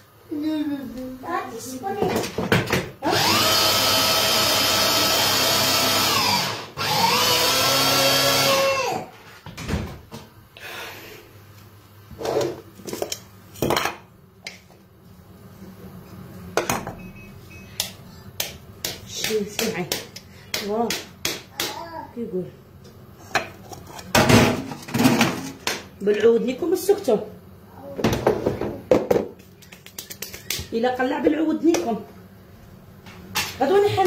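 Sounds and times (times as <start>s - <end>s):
electric food chopper whining: 3.0s - 9.1s.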